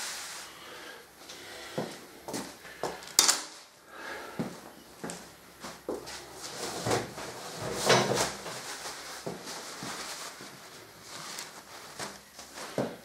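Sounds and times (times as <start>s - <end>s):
rustling scrape: 0.0s - 0.6s, 6.1s - 13.0s.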